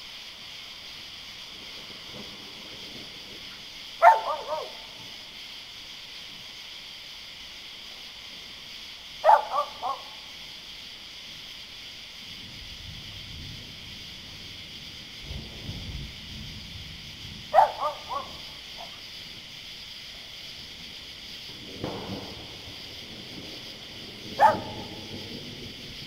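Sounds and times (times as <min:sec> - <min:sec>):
high background hiss: 0:00.0 - 0:26.0
distant thunder rumbling: 0:00.4 - 0:06.9, 0:12.2 - 0:26.0
dog barking: 0:04.0 - 0:05.1, 0:09.2 - 0:10.2, 0:17.5 - 0:19.0, 0:24.3 - 0:25.2.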